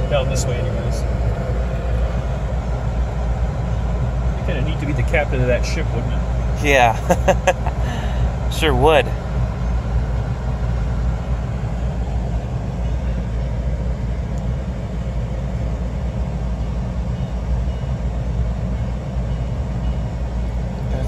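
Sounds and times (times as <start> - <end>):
low rumble inside car cabin: 0.0 - 19.0, 19.6 - 21.0.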